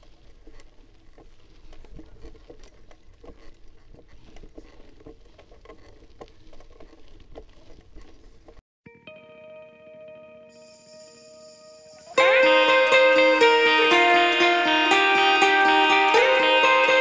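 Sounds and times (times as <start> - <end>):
bike tyres crunching on gravel: 0.0 - 8.6
music: 8.8 - 17.0.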